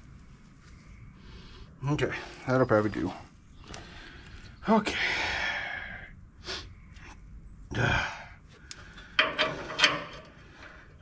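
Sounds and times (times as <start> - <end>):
man breathing hard: 3.6 - 7.1.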